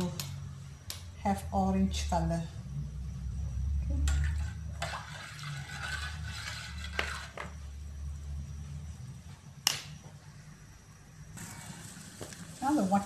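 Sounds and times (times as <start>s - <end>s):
low steady hum: 0.0s - 13.0s
water swishing in a pot: 4.0s - 7.8s, 11.4s - 13.0s.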